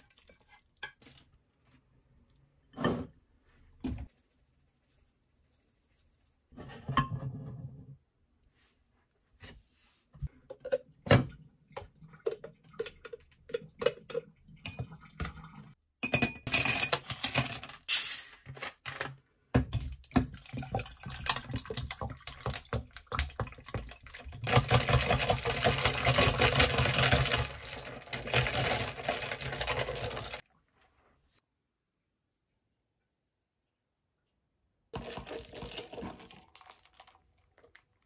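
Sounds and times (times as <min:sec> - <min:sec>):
ice cubes clattering: 0:24.3 - 0:30.4, 0:35.0 - 0:37.4
carbonated water fizzing: 0:35.0 - 0:38.0.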